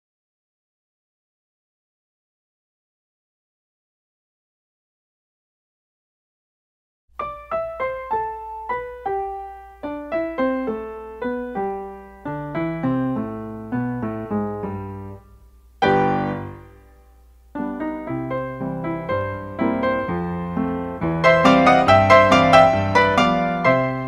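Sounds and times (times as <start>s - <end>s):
solo piano music: 7.2s - 24.0s.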